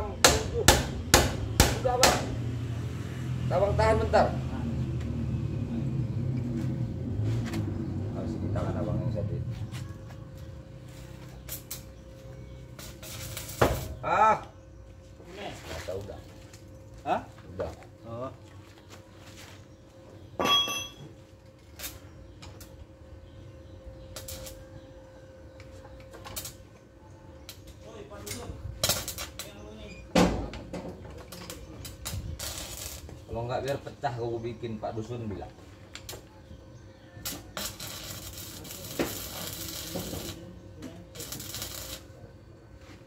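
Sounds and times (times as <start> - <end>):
power tool hissing and crackling: 12.7 - 14.0, 31.4 - 33.8, 37.2 - 42.1
metal tools clinking: 20.4 - 21.1.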